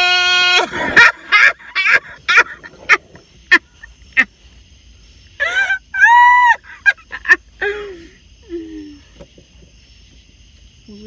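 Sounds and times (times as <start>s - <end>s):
young women laughing: 0.4s - 4.4s, 5.3s - 8.2s.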